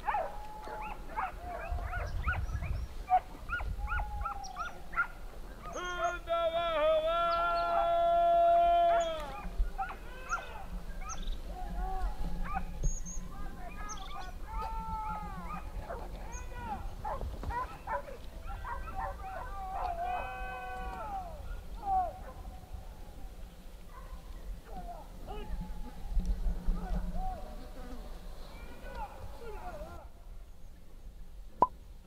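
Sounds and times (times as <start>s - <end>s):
dogs barking and yelping: 0.0s - 5.2s, 8.9s - 11.3s, 12.4s - 12.9s, 13.7s - 16.4s, 17.0s - 20.2s, 21.5s - 22.5s, 23.9s - 24.5s.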